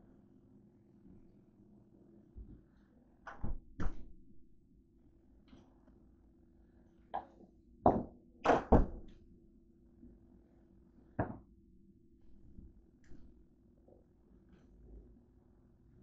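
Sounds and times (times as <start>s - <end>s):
door knocks and thunks: 7.9s - 9.1s.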